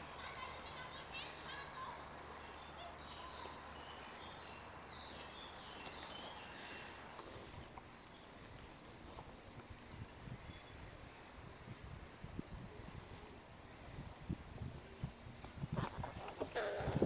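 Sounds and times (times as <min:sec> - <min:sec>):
small birds chirping: 0:00.0 - 0:13.3.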